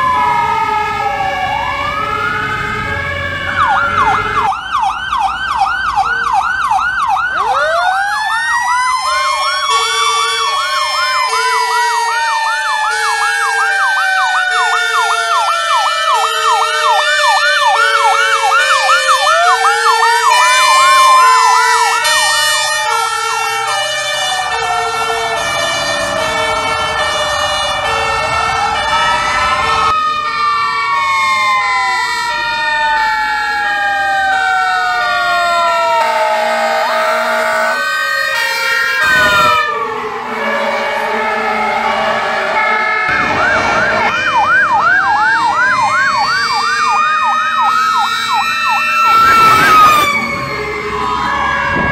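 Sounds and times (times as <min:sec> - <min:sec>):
fast electronic siren yelp: 0:00.0 - 0:51.9
siren wailing up and down: 0:00.0 - 0:51.9
two-tone horn alternating: 0:38.4 - 0:44.5.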